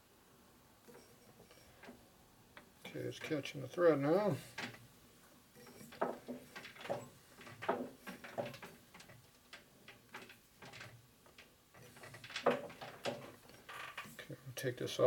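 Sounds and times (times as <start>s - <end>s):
metallic clicks and knocks: 5.6s - 14.2s.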